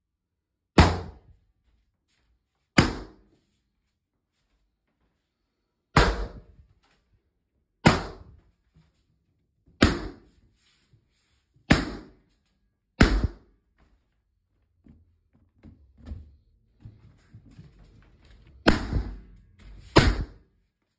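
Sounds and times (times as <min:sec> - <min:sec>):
balloons bursting: 0:18.6 - 0:20.4.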